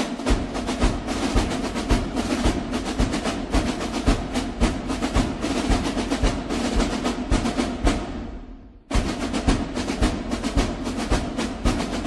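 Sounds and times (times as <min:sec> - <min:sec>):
snare drum rolls: 0:00.0 - 0:12.0
steady bass drum beat: 0:00.0 - 0:12.0.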